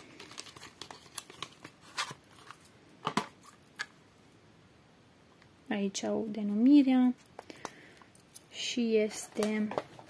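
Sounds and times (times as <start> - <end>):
packaging clicks and paper rustles: 0.0 - 3.9.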